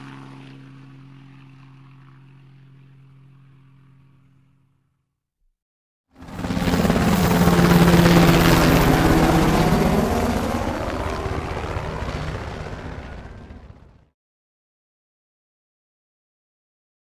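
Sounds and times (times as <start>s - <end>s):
helicopter rotor chop: 0.0s - 4.7s, 6.2s - 14.1s.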